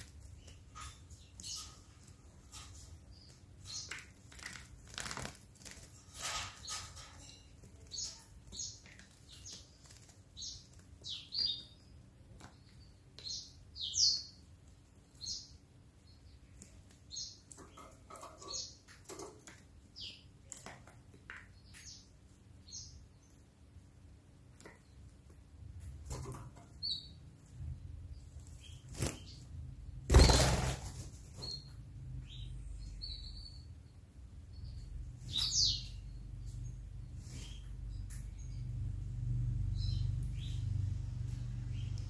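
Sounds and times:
canary chirping: 0.0 - 42.0
wings flapping: 4.3 - 6.0, 30.1 - 31.1.

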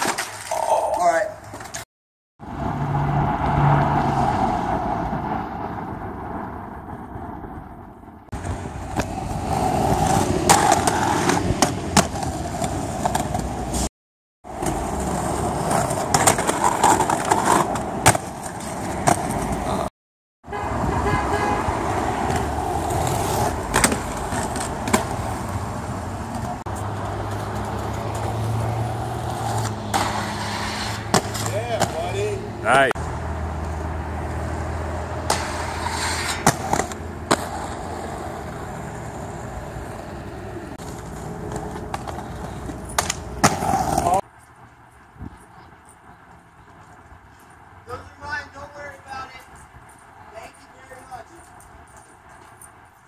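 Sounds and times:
inline skates rolling and grinding: 0.0 - 1.9, 3.7 - 19.9, 21.8 - 53.0
street traffic passing: 0.0 - 53.0
sharp skate clacks: 29.4 - 32.2, 35.2 - 38.0, 40.8 - 47.6.

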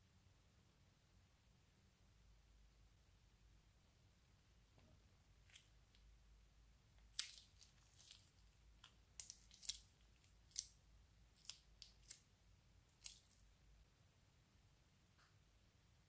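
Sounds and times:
slime crackling from piping bag: 7.0 - 12.2.

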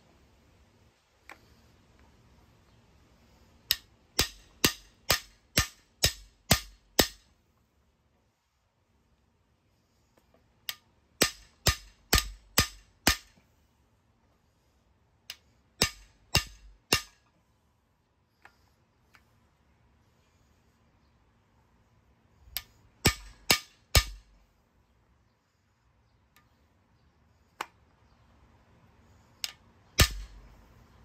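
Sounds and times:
hammer striking metal bar: 3.7 - 7.3, 11.2 - 13.4, 15.8 - 17.2, 22.6 - 24.3, 30.0 - 30.4.

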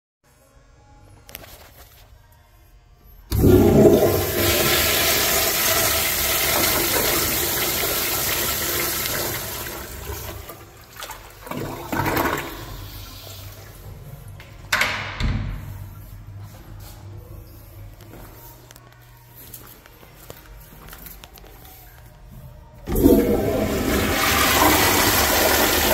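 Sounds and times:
toilet flushing: 3.3 - 14.0, 22.8 - 25.9.

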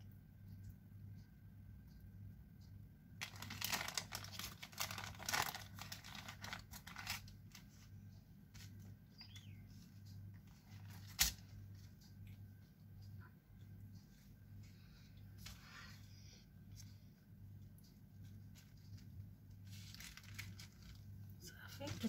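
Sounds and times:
baking paper crinkling: 3.2 - 12.4, 17.8 - 22.0.

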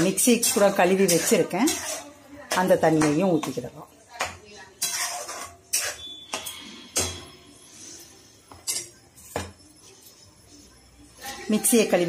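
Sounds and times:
metal spoon knocking in pan: 0.0 - 7.4
spoon scraping pan: 0.0 - 12.0.

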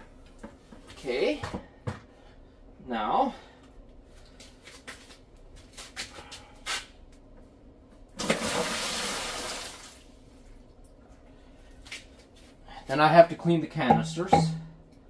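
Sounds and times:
water pouring into a bucket: 8.2 - 10.1.

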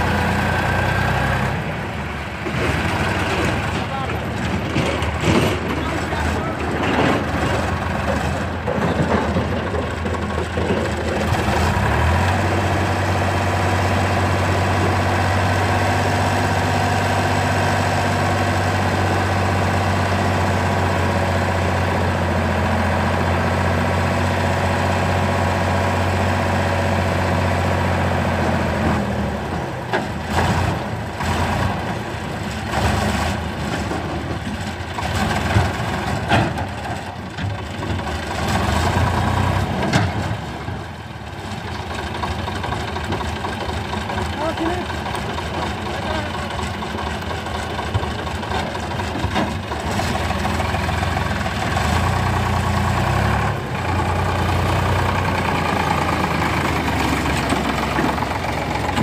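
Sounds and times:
tractor diesel engine: 0.0 - 59.0.

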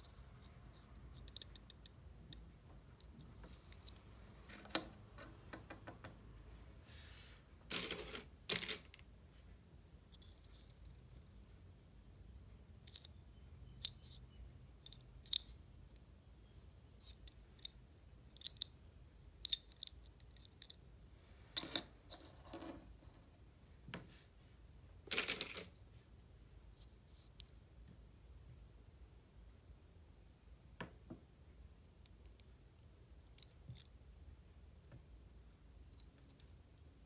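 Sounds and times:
small clicks and taps: 0.7 - 6.2.

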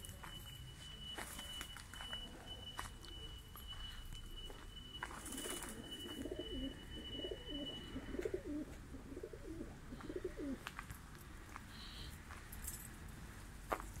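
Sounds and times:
pigeons cooing: 5.3 - 10.7.

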